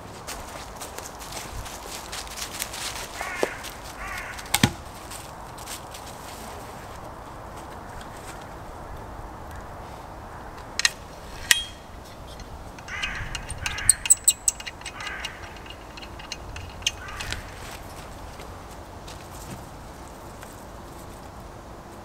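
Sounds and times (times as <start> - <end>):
folding saw blade clicking open: 10.8 - 17.6
wooden knocks: 12.4 - 17.9.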